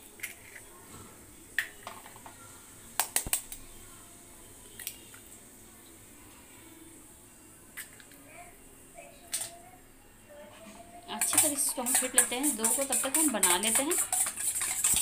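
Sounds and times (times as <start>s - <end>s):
eggshell tapping on steel bowl: 11.2s - 15.0s.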